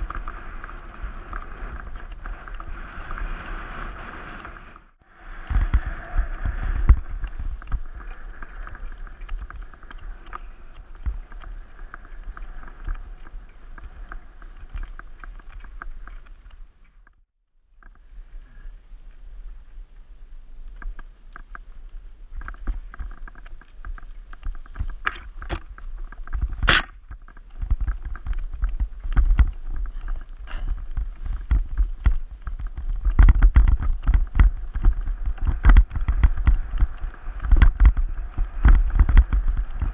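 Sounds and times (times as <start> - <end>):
wind and tyre rumble: 0.0 - 39.9
bike rattling over bumps: 22.3 - 39.9.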